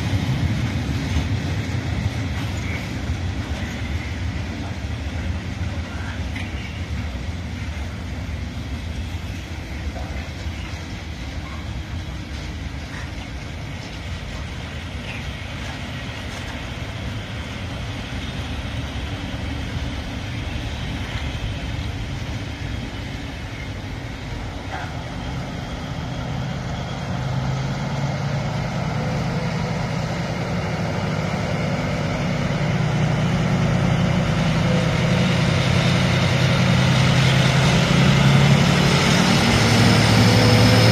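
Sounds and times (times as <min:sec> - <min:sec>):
diesel locomotive engine: 0:00.0 - 0:40.9
freight train rolling past: 0:00.0 - 0:40.9.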